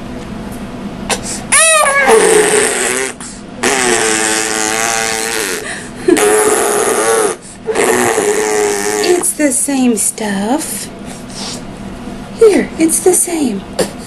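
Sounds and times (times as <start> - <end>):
baby crying: 1.1 - 3.2.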